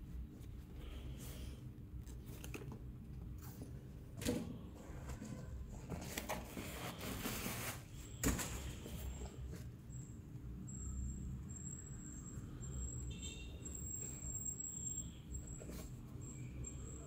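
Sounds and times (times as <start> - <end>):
paper rustling and crinkling: 5.1 - 8.9.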